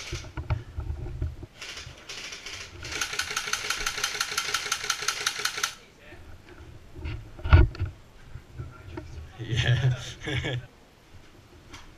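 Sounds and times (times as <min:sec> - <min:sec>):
airsoft gun firing full-auto: 0:01.6 - 0:05.8.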